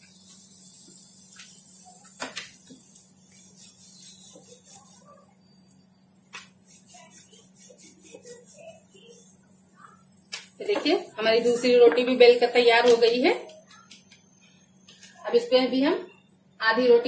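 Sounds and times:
rolling pin rubbing dough: 0:00.3 - 0:05.4, 0:06.3 - 0:12.3.

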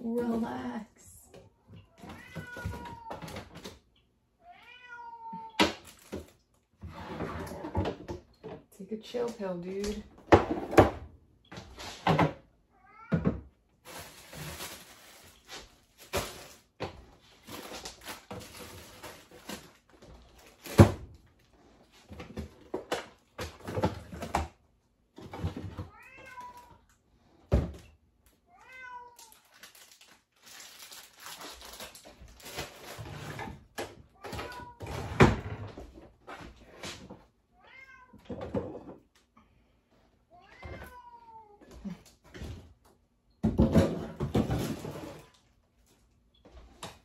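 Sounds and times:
cat meowing: 0:01.8 - 0:03.4, 0:04.4 - 0:05.6, 0:12.7 - 0:13.3, 0:25.9 - 0:26.8, 0:28.5 - 0:29.5, 0:37.6 - 0:38.3, 0:40.3 - 0:41.8.

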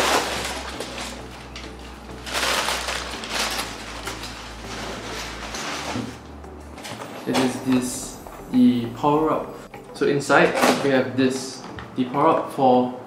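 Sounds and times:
cardboard rustling and scraping: 0:00.0 - 0:01.5, 0:02.2 - 0:06.2.

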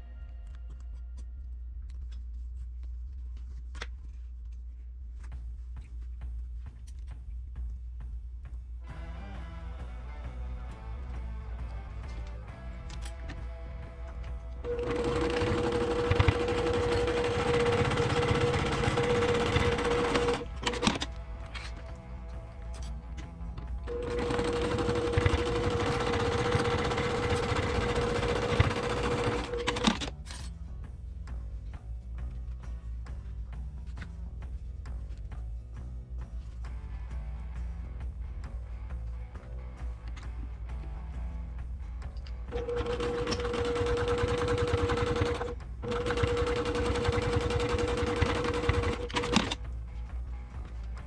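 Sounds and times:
sewing machine stitching: 0:14.7 - 0:21.1, 0:23.9 - 0:30.1, 0:42.5 - 0:49.6.

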